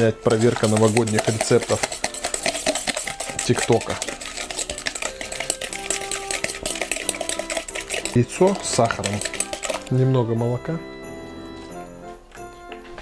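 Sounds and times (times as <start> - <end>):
utensil clicking against bowl: 0.2 - 10.0.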